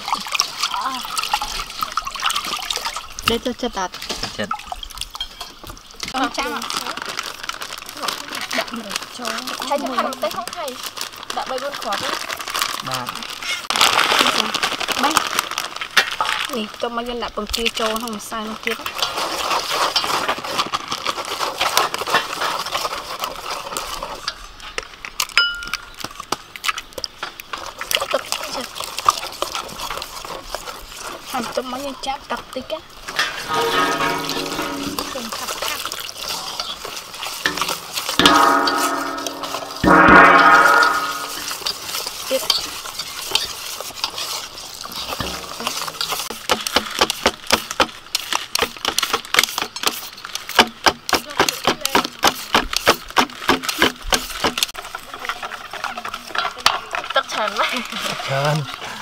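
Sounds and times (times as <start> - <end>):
whisk scraping a metal bowl: 33.2 - 47.6.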